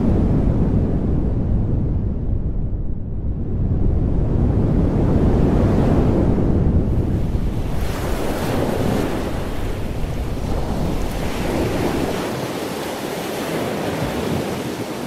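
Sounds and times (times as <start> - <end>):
wind blowing: 0.0 - 15.0
surf washing against rocks: 7.1 - 15.0.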